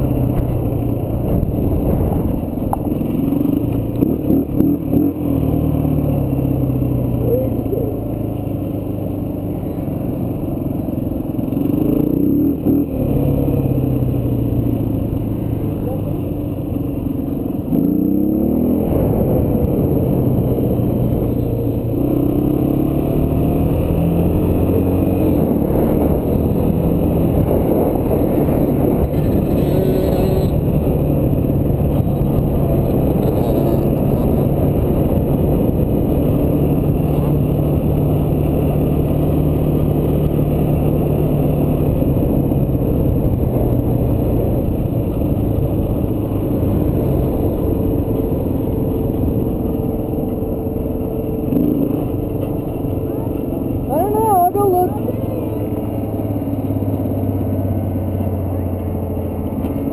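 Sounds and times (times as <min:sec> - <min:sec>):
dirt bike engine revving: 0:22.0 - 0:34.6.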